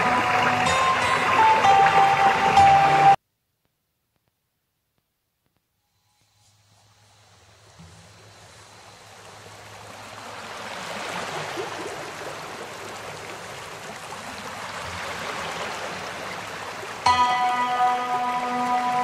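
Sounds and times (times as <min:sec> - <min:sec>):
music: 0:00.0 - 0:03.2, 0:17.0 - 0:19.0.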